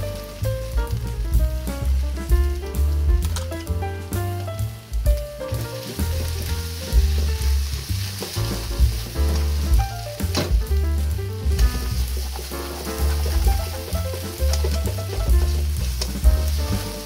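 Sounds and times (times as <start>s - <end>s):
food sizzling in a wok: 0.0s - 17.0s
music with heavy bass beat: 0.0s - 17.0s
wooden spatula stirring: 5.5s - 10.3s, 11.5s - 17.0s.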